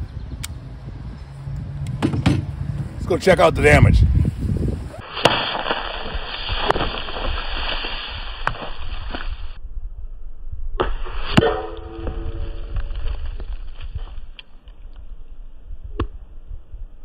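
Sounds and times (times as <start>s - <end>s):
metallic ring: 11.4s - 12.8s.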